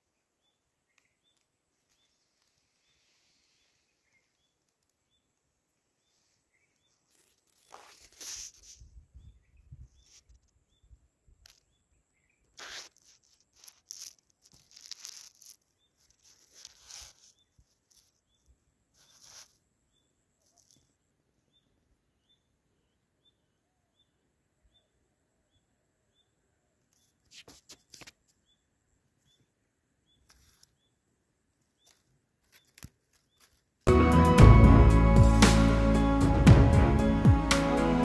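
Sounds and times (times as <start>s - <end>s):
steady high whine: 33.9s - 38.0s.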